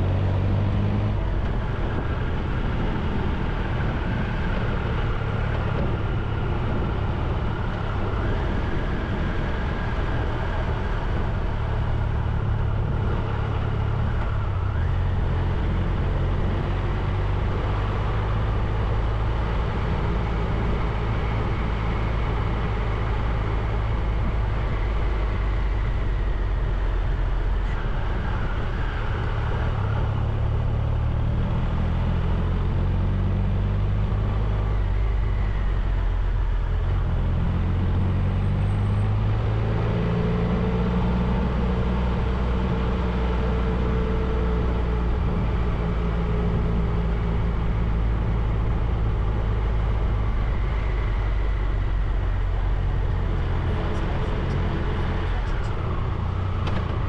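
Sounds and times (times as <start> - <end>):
wind and road noise: 0.0 - 57.0.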